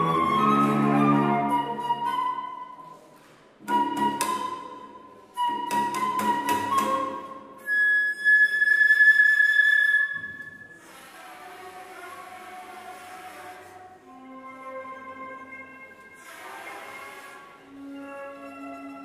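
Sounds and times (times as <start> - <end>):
cello playing: 0.0 - 2.4, 10.8 - 19.0
flute playing: 0.0 - 19.0.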